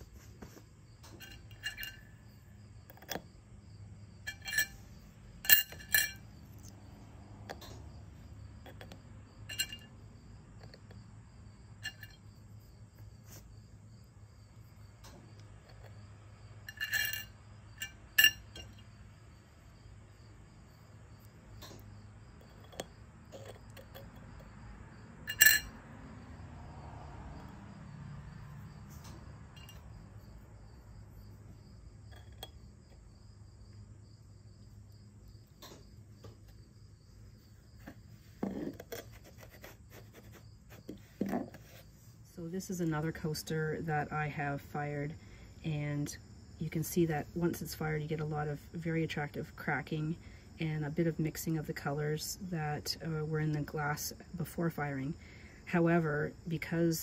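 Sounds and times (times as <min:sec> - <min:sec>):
glass clinking on clay coaster: 0:01.1 - 0:02.1, 0:04.3 - 0:04.8, 0:05.4 - 0:06.3, 0:09.5 - 0:10.0, 0:16.6 - 0:18.9, 0:25.3 - 0:25.8.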